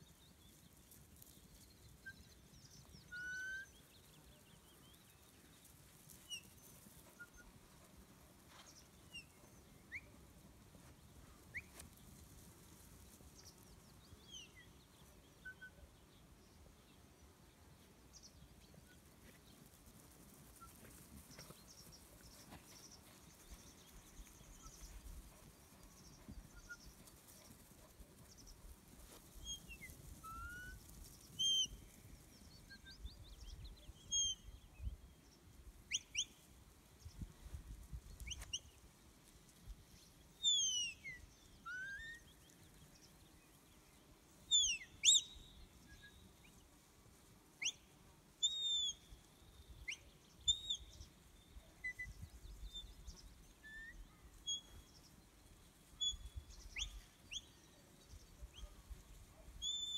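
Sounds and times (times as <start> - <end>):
faint birdsong: 0.0 - 59.9
short sharp whistles: 44.6 - 45.4.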